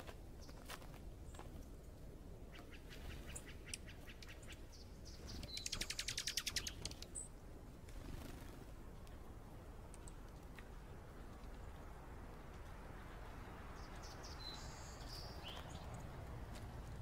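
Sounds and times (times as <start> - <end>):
songbirds chirping: 0.0 - 17.0
bird trill: 2.5 - 7.3.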